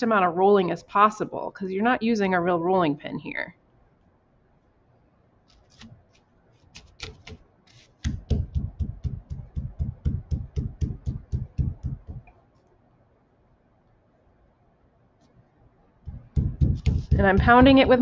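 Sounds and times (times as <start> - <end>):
hand slapping clay: 6.7 - 12.3, 16.1 - 18.0
dull thuds of pounding clay: 8.0 - 12.3, 16.1 - 18.0.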